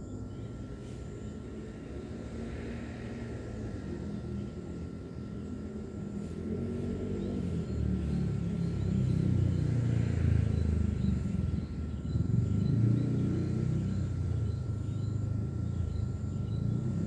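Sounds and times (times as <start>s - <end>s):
vehicle engine rumble: 0.0s - 17.0s.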